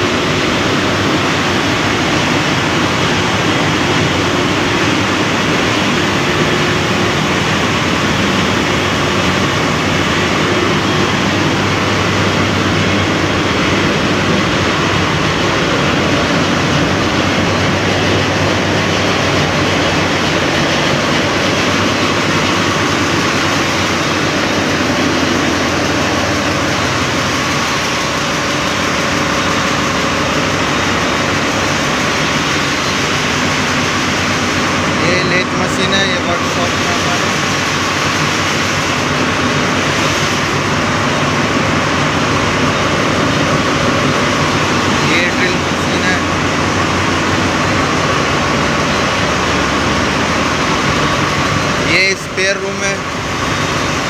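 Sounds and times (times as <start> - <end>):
engine-room machinery roar: 0.0 - 54.0.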